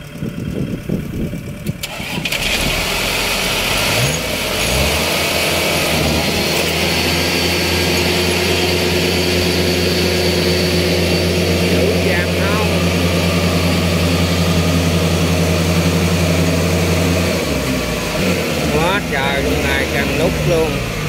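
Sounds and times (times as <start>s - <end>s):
farm machinery engine revving: 0.0s - 21.0s.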